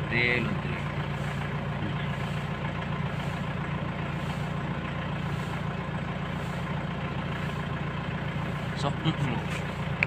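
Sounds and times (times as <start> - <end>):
engine idling: 0.0 - 10.0.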